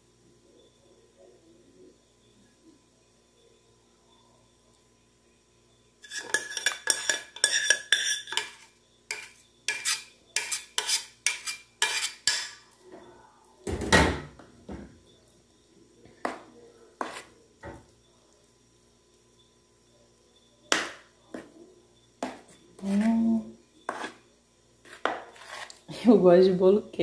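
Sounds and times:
cutlery clinking against dishes: 6.0s - 12.7s.

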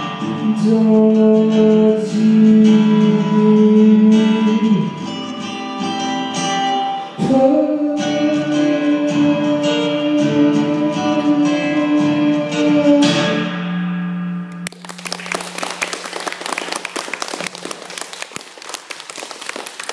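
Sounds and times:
acoustic guitar playing: 0.0s - 16.4s
audience applause: 14.6s - 19.9s.

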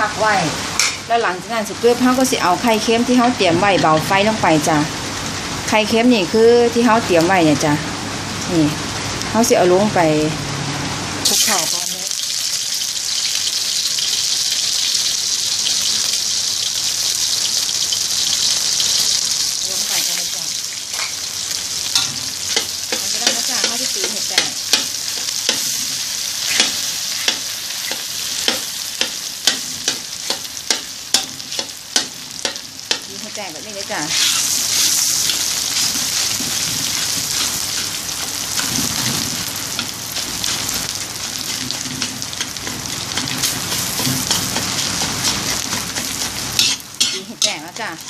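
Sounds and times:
egg sizzling in hot oil: 11.2s - 48.0s
spatula scraping: 34.1s - 48.0s.

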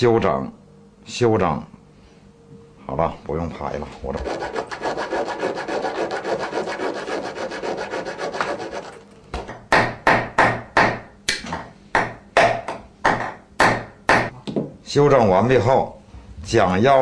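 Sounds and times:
filing metal key by hand: 4.2s - 9.2s.

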